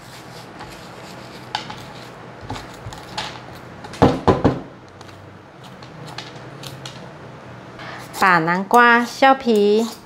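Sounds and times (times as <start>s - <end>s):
metal spoon scraping pumpkin: 7.8s - 10.0s.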